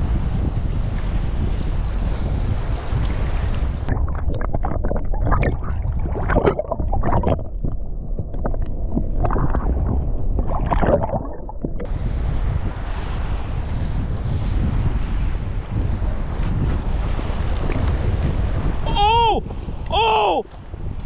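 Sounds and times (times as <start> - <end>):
muffled underwater water rumble: 0.0 - 20.0
wind buffeting microphone: 0.0 - 21.0
underwater gurgling and crackles: 2.9 - 12.0.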